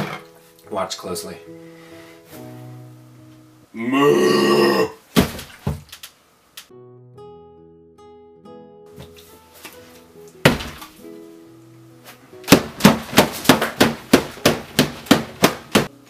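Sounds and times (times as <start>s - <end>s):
soft background music: 0.0s - 3.9s, 6.7s - 16.0s
hands slamming on table: 10.5s - 11.0s.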